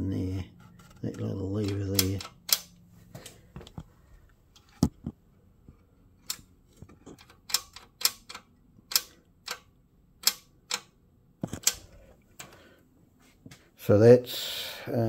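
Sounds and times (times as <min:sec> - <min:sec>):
sharp metallic clicks and taps: 0:01.6 - 0:02.8, 0:06.2 - 0:11.8.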